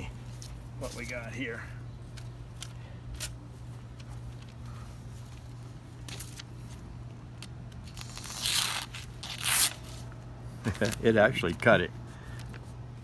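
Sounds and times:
steady low hum: 0.0s - 13.0s
newspaper rustling and crackling: 0.2s - 1.4s, 2.1s - 12.7s.

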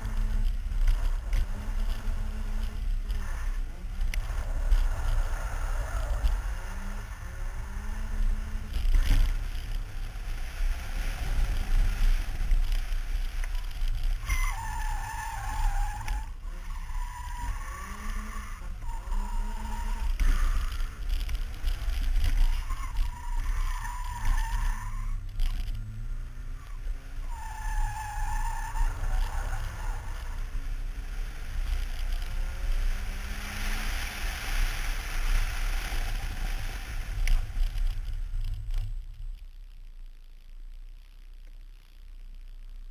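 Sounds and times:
car engine running hard: 0.0s - 39.0s.

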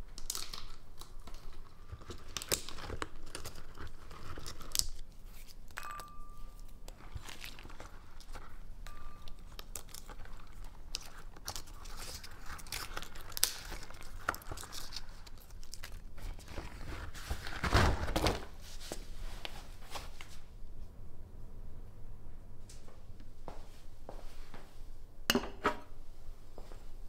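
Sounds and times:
walnut shells cracking by hand: 0.2s - 1.5s.

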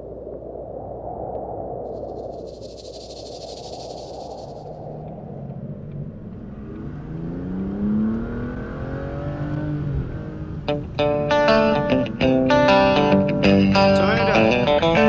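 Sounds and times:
car engine accelerating: 5.3s - 10.7s
music: 10.7s - 15.0s.

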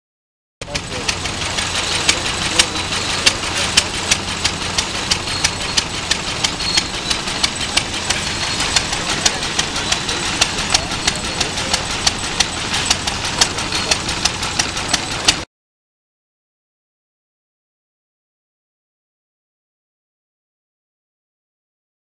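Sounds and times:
stationary engine exhaust beats: 0.6s - 15.5s.

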